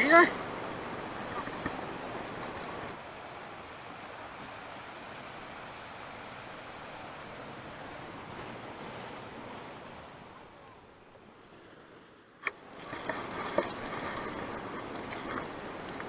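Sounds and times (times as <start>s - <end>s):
fish thrashing in water: 12.6s - 16.0s.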